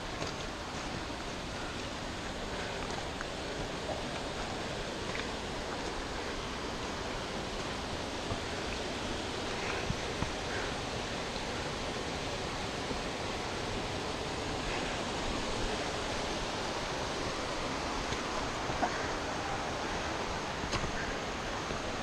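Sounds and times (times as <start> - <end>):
waterfall rushing over rock: 0.0 - 22.0.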